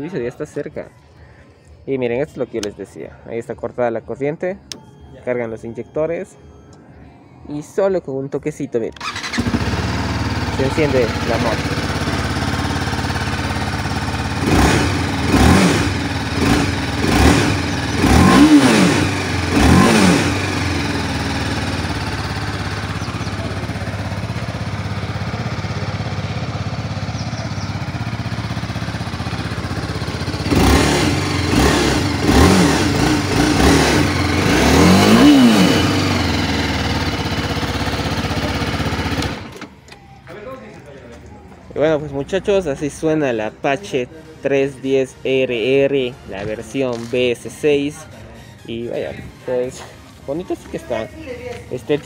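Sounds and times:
motorcycle engine idling and revving: 9.0 - 39.8.

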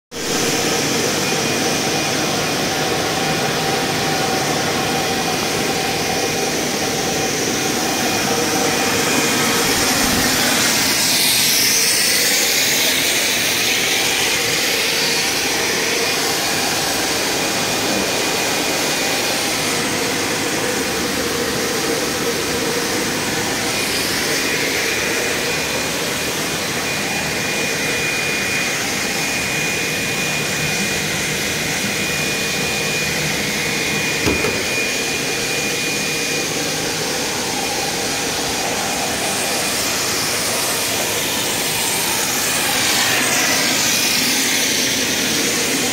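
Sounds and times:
high-pitched whine: 0.2 - 45.9
motors and blowers humming: 0.2 - 45.9
short knock: 34.2 - 34.8.

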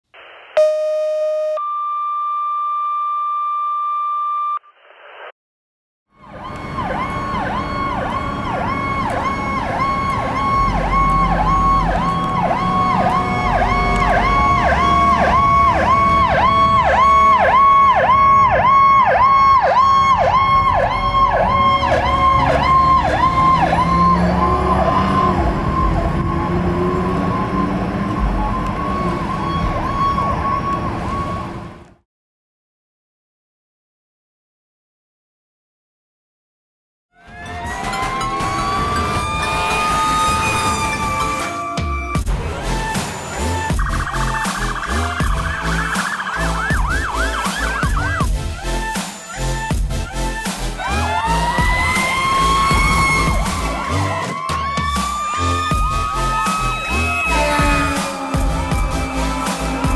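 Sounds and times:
electronic chime tones: 0.6 - 4.6
fire engine siren yelping: 6.1 - 32.0, 37.2 - 59.9
low falling siren tone: 6.2 - 31.8, 37.2 - 48.4, 50.9 - 59.9
truck engine rumble: 6.2 - 32.0, 37.3 - 59.9.

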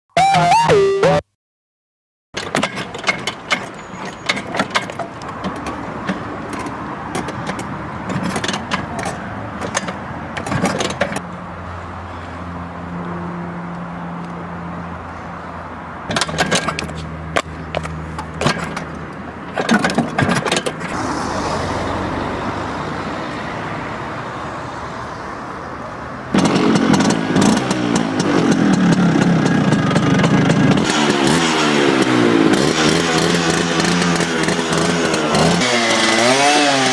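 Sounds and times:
scooter kick-start clattering: 2.4 - 11.2, 16.1 - 17.5, 18.4 - 21.0, 26.4 - 36.2
scooter engine running and revving: 26.3 - 36.9.

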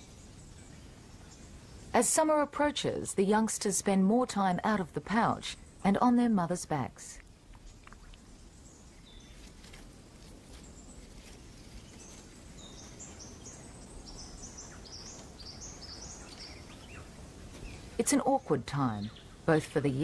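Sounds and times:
small birds calling: 7.2 - 20.0.

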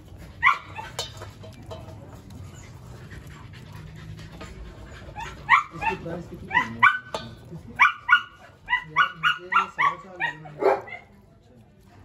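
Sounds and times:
animal breathing: 2.3 - 5.5.

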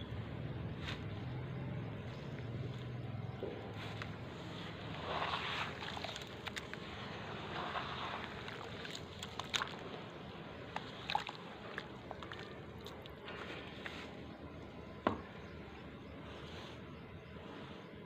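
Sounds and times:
water sloshing: 4.2 - 13.8
hands squeezing wet cement: 4.7 - 14.1.

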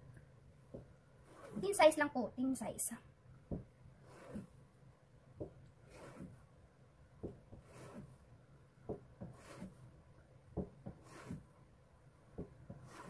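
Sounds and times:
knife slicing on cutting board: 1.3 - 1.6, 4.0 - 4.5, 5.9 - 6.4, 7.6 - 8.1, 9.2 - 9.8, 10.9 - 11.4.

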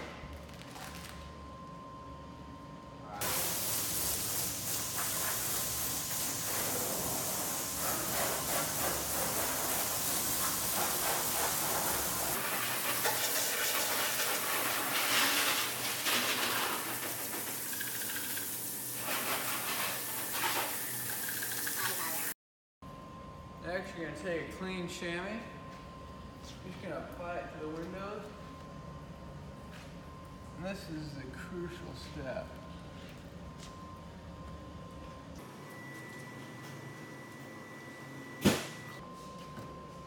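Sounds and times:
hose nozzle spraying water: 3.2 - 22.3.

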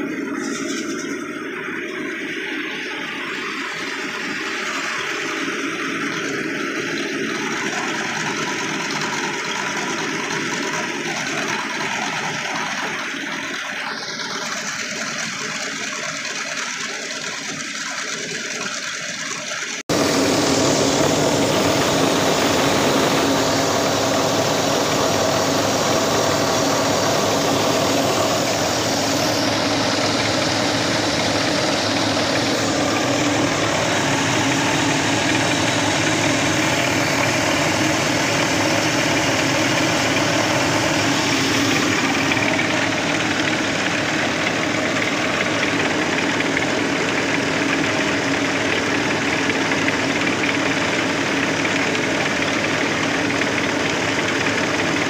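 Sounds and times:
rice mill rumbling: 0.0 - 55.0
rice grains streaming hiss: 19.9 - 46.2.

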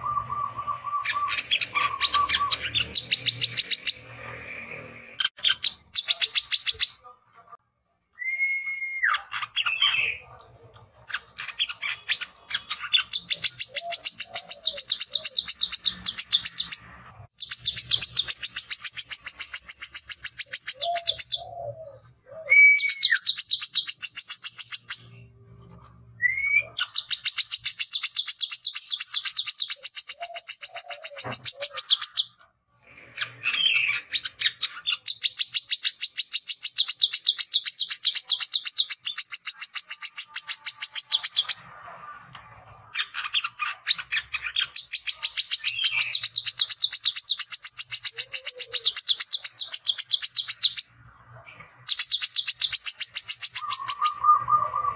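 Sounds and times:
bird rapid chattering song: 0.0 - 7.1, 9.1 - 22.0, 22.8 - 25.4, 26.6 - 41.7, 42.3 - 54.9.

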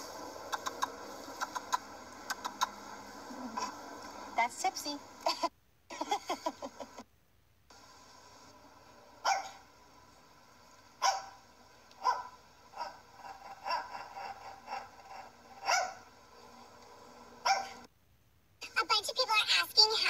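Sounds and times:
small dog barking: 9.2 - 9.6, 11.0 - 11.4, 12.0 - 16.1, 17.4 - 17.9.

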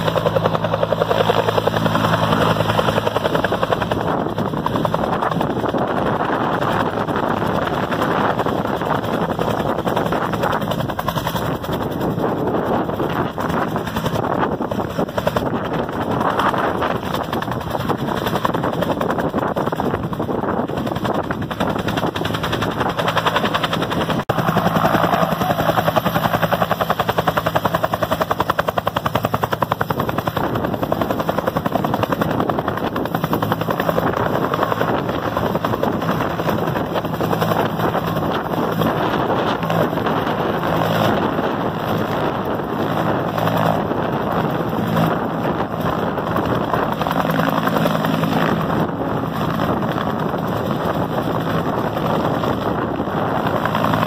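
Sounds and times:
helicopter rotor beating: 0.0 - 54.0.

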